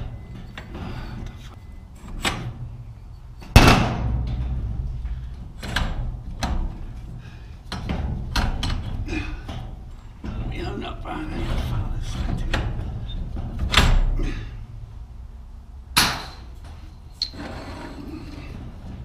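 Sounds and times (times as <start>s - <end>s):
metal clanking and knocking: 2.0s - 14.2s.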